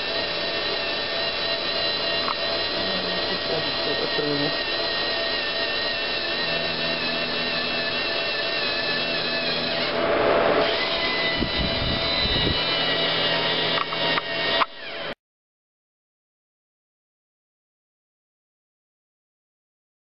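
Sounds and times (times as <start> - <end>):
servo motors whirring: 0.0 - 15.2.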